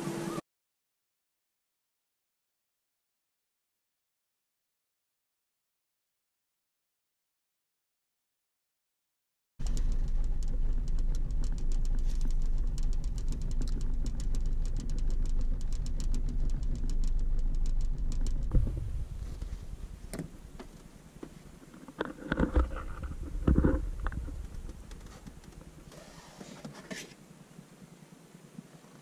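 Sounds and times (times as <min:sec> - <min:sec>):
rapid ticking: 0:09.6 - 0:26.1
low rumble: 0:09.6 - 0:26.2.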